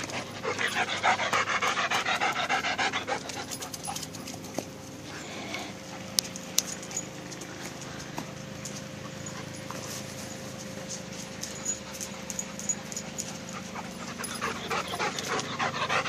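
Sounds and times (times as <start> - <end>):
dog panting: 0.0 - 4.5, 11.5 - 16.0.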